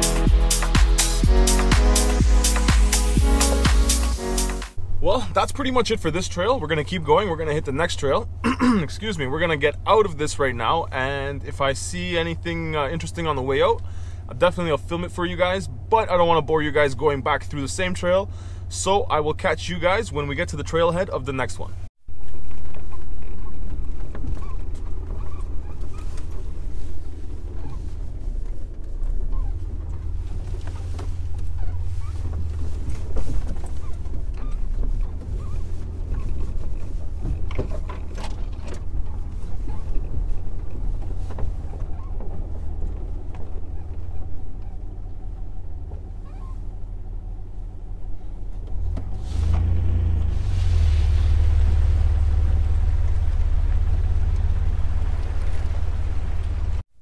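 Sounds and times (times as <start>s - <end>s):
engine and tyre rumble: 0.0s - 57.0s
knocks and rattles: 22.1s - 46.1s.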